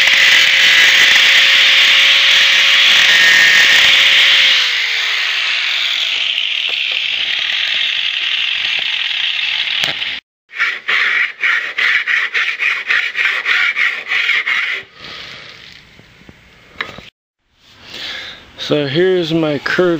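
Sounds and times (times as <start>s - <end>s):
angle grinder on metal: 0.0s - 15.8s
grinder spinning down: 0.0s - 15.9s.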